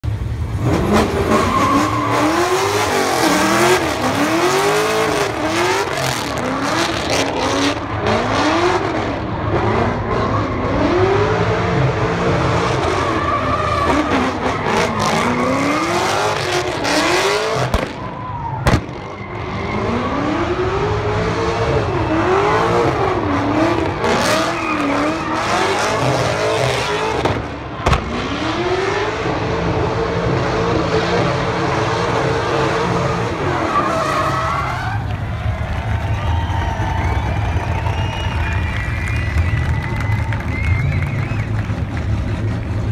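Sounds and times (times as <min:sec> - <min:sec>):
car engine revving hard: 0:00.5 - 0:17.9, 0:19.6 - 0:34.4
sharp crack: 0:18.6 - 0:19.0, 0:27.8 - 0:28.2.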